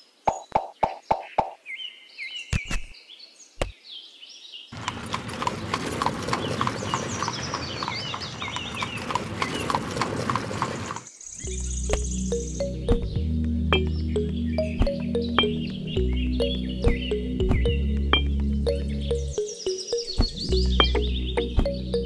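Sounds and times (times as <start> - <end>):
hooves clip-clopping: 4.8 - 11.1
chirping: 4.8 - 22.0
dull thumps: 20.1 - 22.0.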